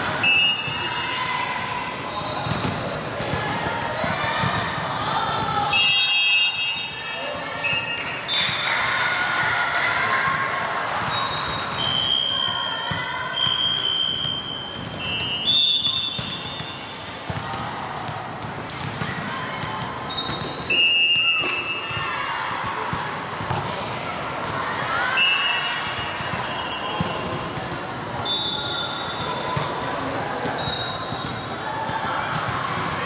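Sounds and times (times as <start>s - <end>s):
short whistle blasts: 11.1s - 12.7s, 13.3s - 16.9s, 20.1s - 21.8s, 28.2s - 29.2s.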